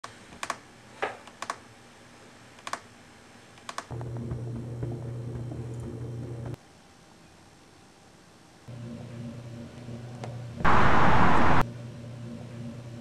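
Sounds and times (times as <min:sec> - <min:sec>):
steady low hum: 0:08.6 - 0:13.0.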